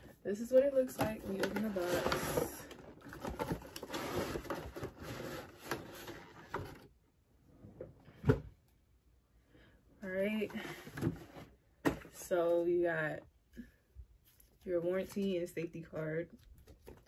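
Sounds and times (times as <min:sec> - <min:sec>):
packaging rustling and scraping: 0:00.4 - 0:06.9.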